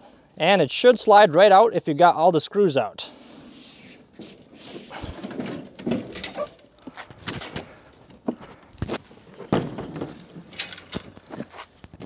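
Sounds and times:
metal scraping and rubbing: 3.2 - 6.7
metal knocks and clunks: 5.0 - 6.6, 7.2 - 11.5.

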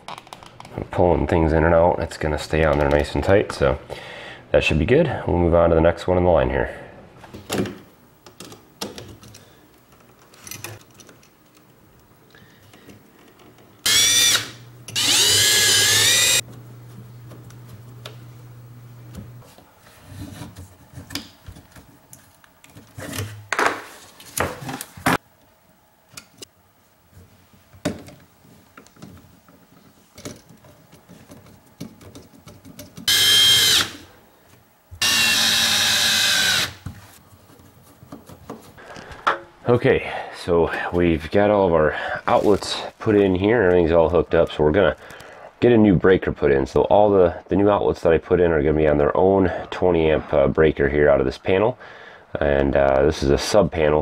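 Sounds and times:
cordless drill whirring: 13.8 - 16.4, 33.1 - 34.0, 35.0 - 36.8.

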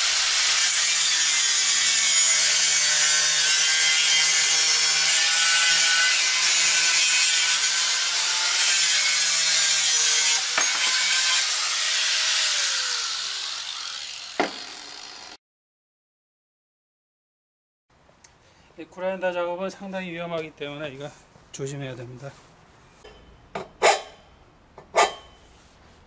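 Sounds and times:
angle grinder cutting steel: 0.0 - 15.4.

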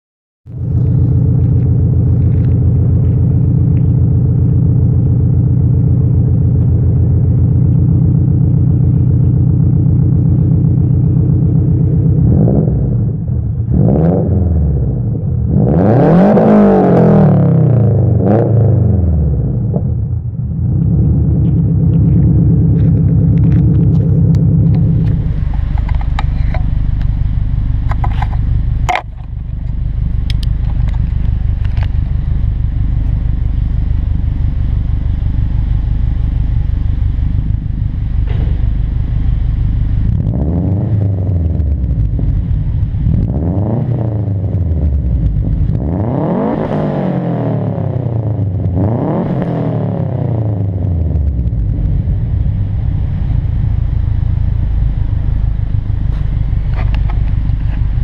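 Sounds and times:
second car engine idling: 0.5 - 13.7, 19.0 - 43.3, 50.5 - 58.0
car engine idling and revving: 0.5 - 58.0.

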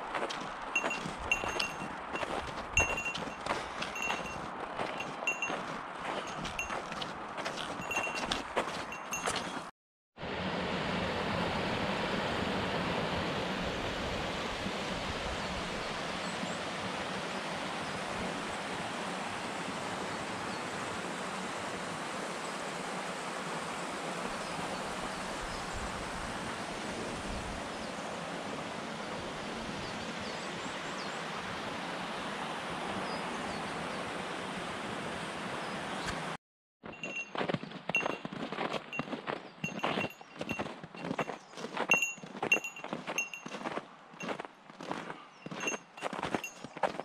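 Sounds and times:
creek rushing: 0.0 - 36.4.

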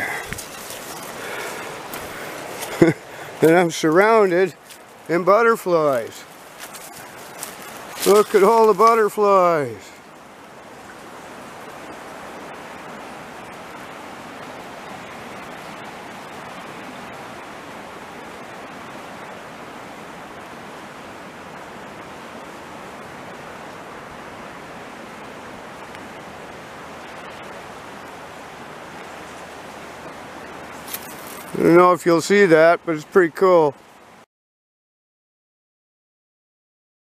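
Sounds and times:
fast-flowing creek rushing: 0.0 - 34.2.

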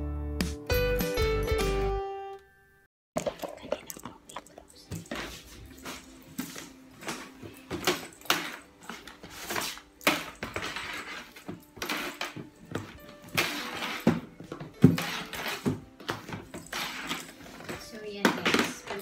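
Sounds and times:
objects knocking and clattering: 3.2 - 19.0.

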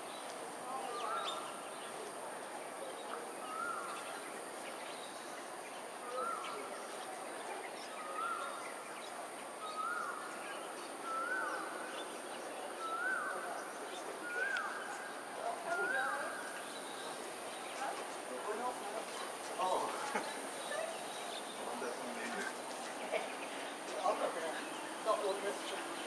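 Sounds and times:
outdoor background noise: 0.0 - 26.0.

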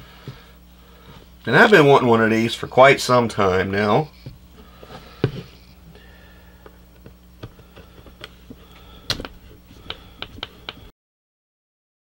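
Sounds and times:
steady low hum: 0.0 - 10.9.

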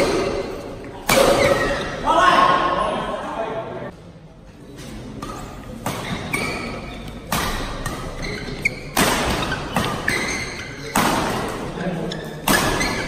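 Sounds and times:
rackets hitting shuttlecock: 0.0 - 2.0, 5.2 - 11.8, 12.4 - 13.0
shoes squeaking on court: 0.0 - 2.0, 4.6 - 13.0.

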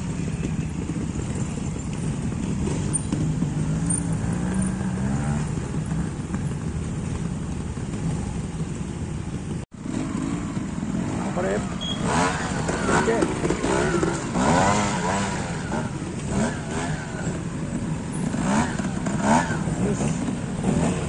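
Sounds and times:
motorcycle engine running at low revs: 0.0 - 21.0.

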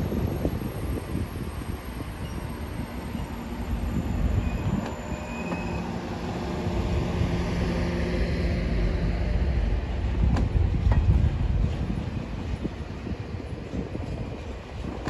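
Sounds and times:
train rumbling past: 0.0 - 15.0.

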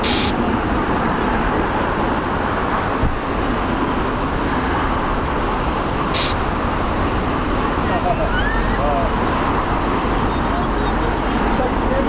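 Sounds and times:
jet engines roaring: 0.0 - 12.0
wind buffeting the microphone: 0.3 - 7.8.

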